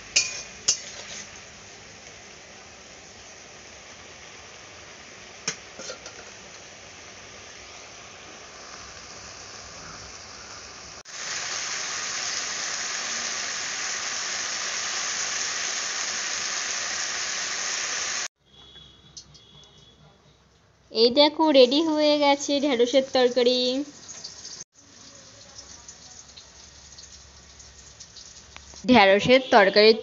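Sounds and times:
curry sizzling in a wok: 0.0 - 18.3, 21.5 - 29.9
metal spatula clinking on pan: 0.1 - 1.2.

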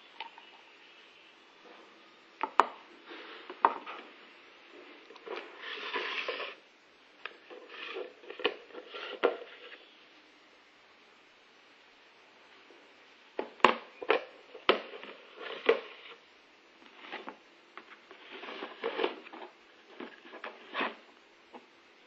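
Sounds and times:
plastic scraping: 1.6 - 6.6, 7.2 - 9.9, 13.4 - 16.2, 16.8 - 21.7.

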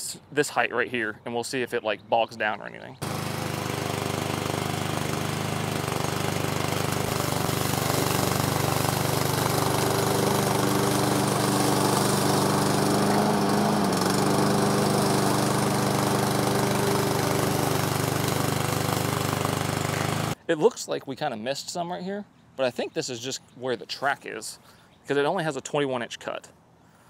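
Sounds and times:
blade cutting grass: 3.0 - 20.4
mower engine running: 3.0 - 20.4.

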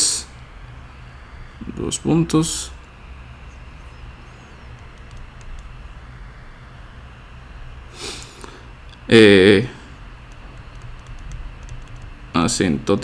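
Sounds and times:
low hum and hiss: 0.0 - 13.0
faint ticks: 4.7 - 5.7
short hiss: 7.9 - 8.6.

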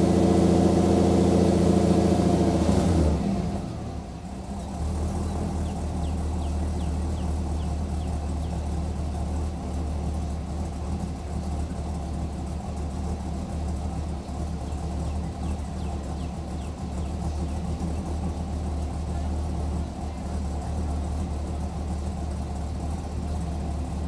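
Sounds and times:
car engine idling: 0.0 - 24.0.

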